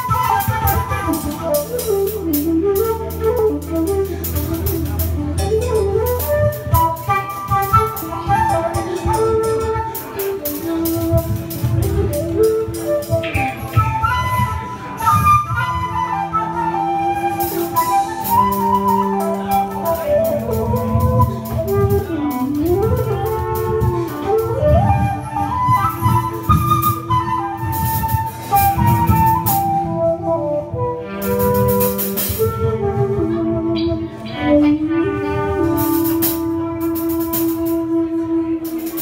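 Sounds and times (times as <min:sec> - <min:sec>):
rock band playing: 0:00.0 - 0:14.0, 0:17.1 - 0:24.6, 0:31.2 - 0:32.5, 0:35.7 - 0:37.7
flute melody: 0:00.0 - 0:39.0.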